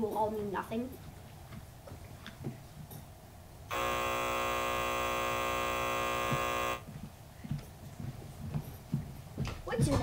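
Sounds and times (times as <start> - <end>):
game-show buzzer: 3.7 - 6.9.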